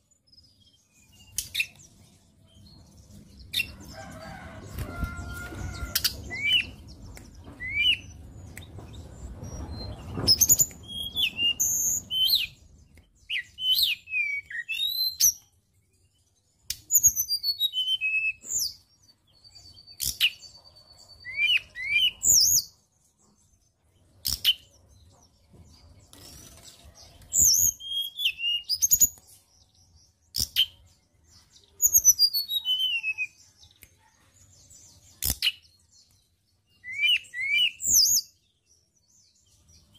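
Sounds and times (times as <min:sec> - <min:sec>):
bird singing whistled notes: 0:05.8 - 0:06.8, 0:07.6 - 0:08.7, 0:09.3 - 0:18.8, 0:19.4 - 0:22.8, 0:27.3 - 0:33.6, 0:35.3 - 0:39.9.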